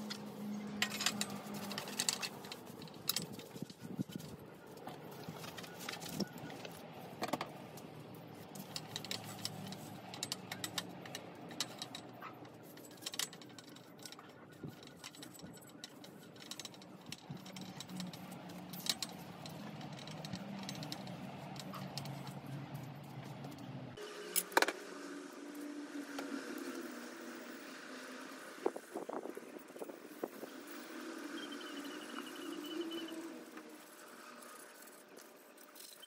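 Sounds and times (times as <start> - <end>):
scattered clicks and rattles: 0.0 - 23.7.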